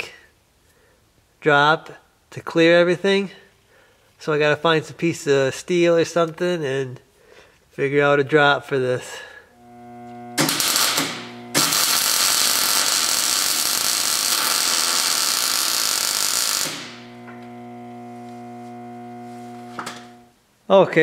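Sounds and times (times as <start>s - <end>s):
electric arc welding hiss: 9.6s - 20.3s.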